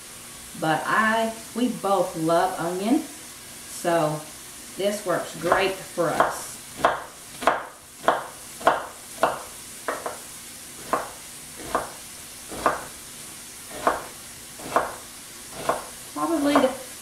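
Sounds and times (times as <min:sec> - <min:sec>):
sausage sizzling in skillet: 0:00.0 - 0:17.0
knife chopping on wooden board: 0:05.5 - 0:13.0, 0:13.7 - 0:16.8.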